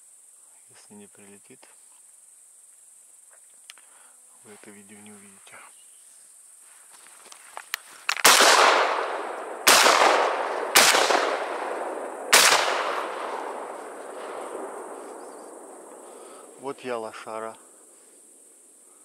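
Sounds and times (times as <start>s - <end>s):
shotgun shots echoing: 8.1s - 16.6s.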